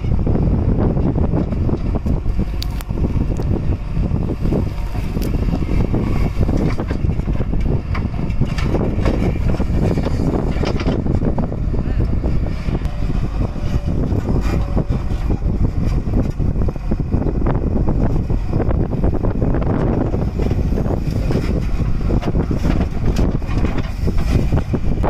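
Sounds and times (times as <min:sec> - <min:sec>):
diesel engine under load: 0:00.0 - 0:25.0
wind buffeting microphone: 0:00.0 - 0:25.0.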